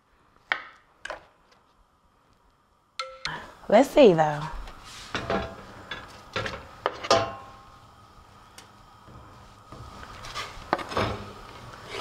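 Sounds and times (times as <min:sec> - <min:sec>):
knocks and clinks on metal pot: 0:03.0 - 0:03.4, 0:06.4 - 0:07.5
knife scraping cutting board: 0:11.8 - 0:12.0.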